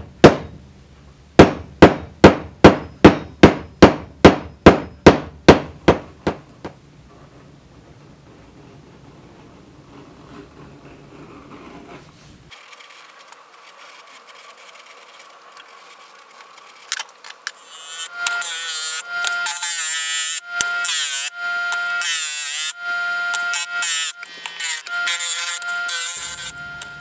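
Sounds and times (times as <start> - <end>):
disc sander grinding coin: 12.5 - 27.0.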